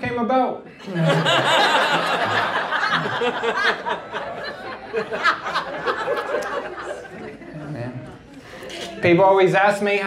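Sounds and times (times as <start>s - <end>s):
audience laughing: 0.8s - 8.0s.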